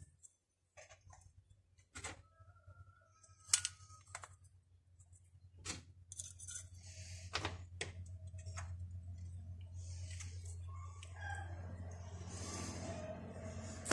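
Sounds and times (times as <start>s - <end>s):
small parts clicking: 3.2s - 4.4s.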